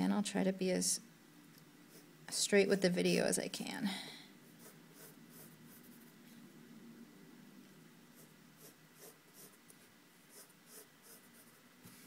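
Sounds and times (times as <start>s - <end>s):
pencil scratching on paper: 4.4s - 6.1s, 8.1s - 9.6s, 10.3s - 12.0s.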